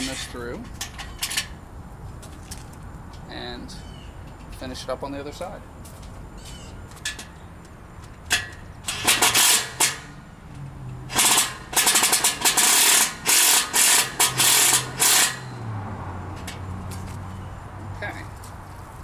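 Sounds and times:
impact driver hammering: 8.3 - 10.1, 11.1 - 15.5.

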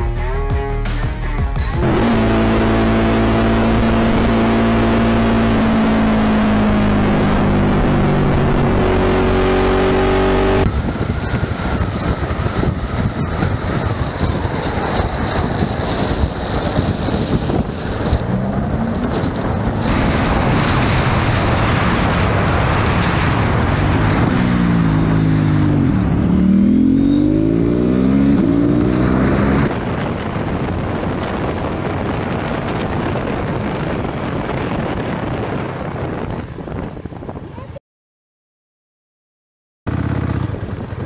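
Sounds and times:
motorcycle engine running: 1.7 - 19.9, 24.5 - 35.8, 39.9 - 41.0
wind rush: 1.8 - 37.7.

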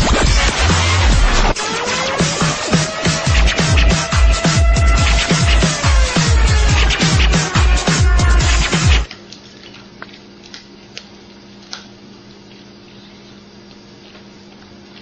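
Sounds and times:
electronic dance music: 0.0 - 9.1
steady low hum: 0.0 - 15.0.

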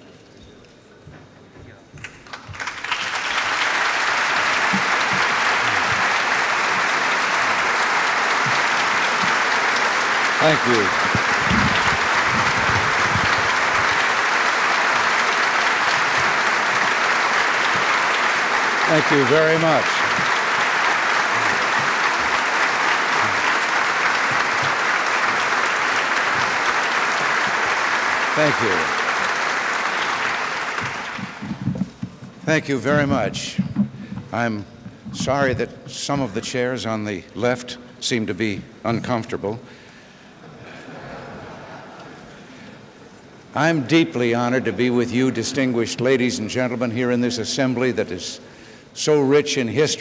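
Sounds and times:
crowd applauding: 2.0 - 33.6.

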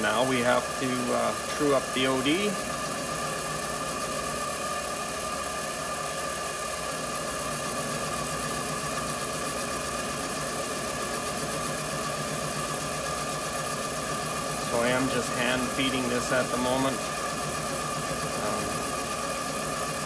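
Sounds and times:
cutting tool on spinning metal: 0.0 - 20.0
metal lathe motor whine: 0.0 - 20.0.

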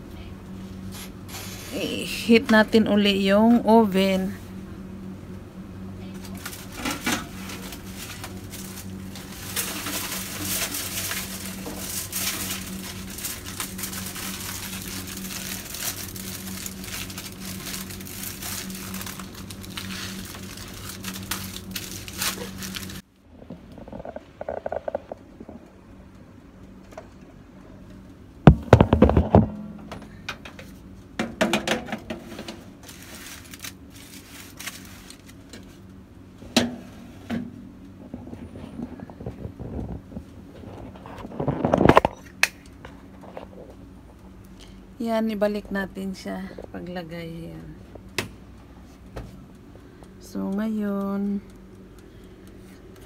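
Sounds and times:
steady low hum: 0.0 - 53.0
aluminium foil crinkling: 6.0 - 23.0, 32.3 - 36.0
knocks and rattles in oven: 28.4 - 32.7.

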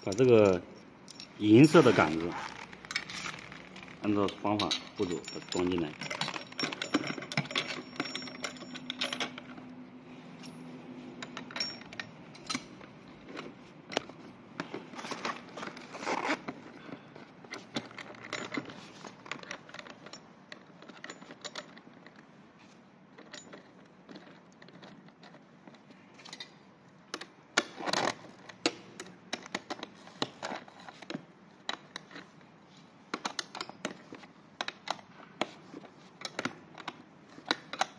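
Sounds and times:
metallic clicks and clinks: 0.0 - 1.4, 2.9 - 9.6, 10.4 - 12.8.

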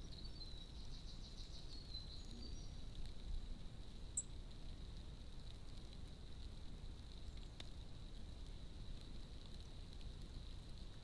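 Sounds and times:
songbirds chirping: 0.0 - 4.5.

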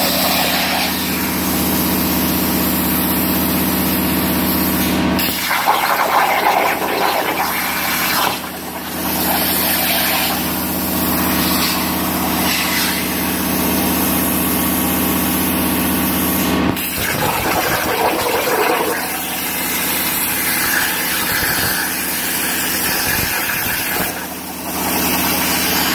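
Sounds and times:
plasma cutter hiss: 0.0 - 1.4, 9.1 - 10.5, 11.3 - 13.4, 19.1 - 25.9.

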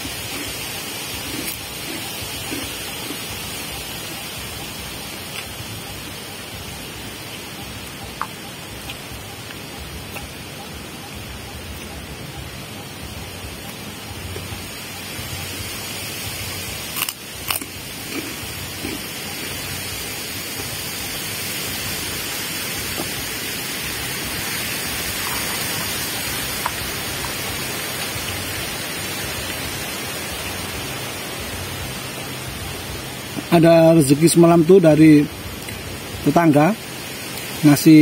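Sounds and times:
river rushing: 15.3 - 34.1.

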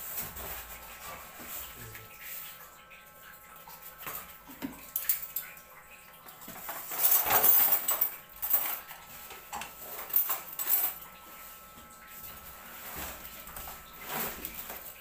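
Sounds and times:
styrofoam and cardboard being handled: 12.7 - 14.8.

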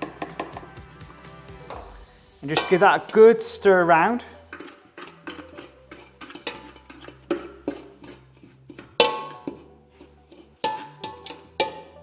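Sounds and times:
background music with bass notes: 0.0 - 4.4
spoon knocking in steel bowl: 4.5 - 9.7, 10.3 - 12.0.

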